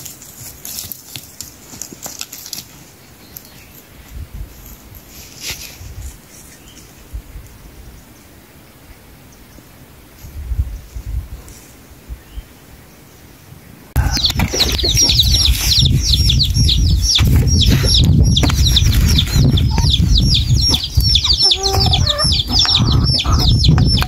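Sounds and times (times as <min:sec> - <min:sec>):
chickens clucking: 0:14.0 - 0:24.0
chicks cheeping: 0:14.0 - 0:24.0
heavy low rumble: 0:14.0 - 0:24.0.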